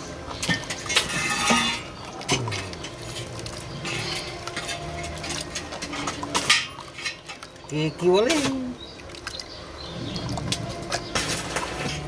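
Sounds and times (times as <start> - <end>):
wet cement stirring and scraping: 0.0 - 12.0.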